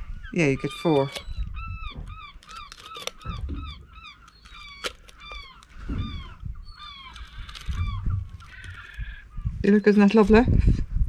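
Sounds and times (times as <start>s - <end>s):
seabirds calling: 0.0s - 10.4s
sharp clicks: 0.8s - 9.1s.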